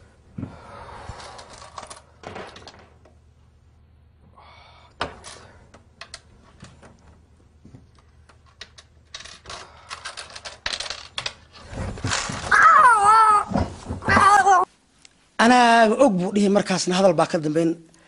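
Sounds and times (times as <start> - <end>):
high-pitched wailing shout: 12.5 - 13.5.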